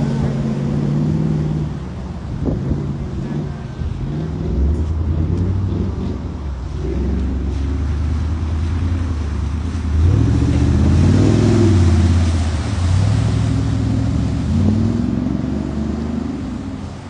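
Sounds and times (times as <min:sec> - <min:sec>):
vehicle engine revving hard: 0:10.0 - 0:16.8.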